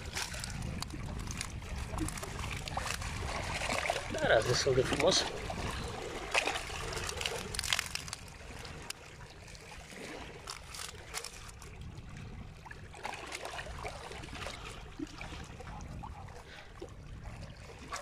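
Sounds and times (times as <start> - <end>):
wet net clicks and rustles: 0.0 - 4.2, 6.3 - 8.4, 10.3 - 11.7
water lapping at rocky shore: 0.0 - 18.0.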